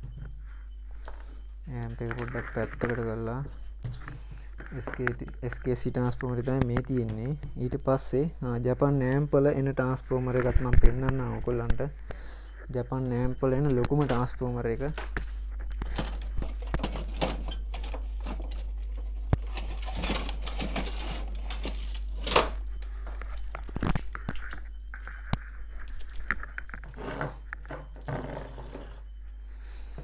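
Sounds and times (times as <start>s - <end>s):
steady low hum: 0.0s - 30.0s
rustling of wire: 13.7s - 29.2s.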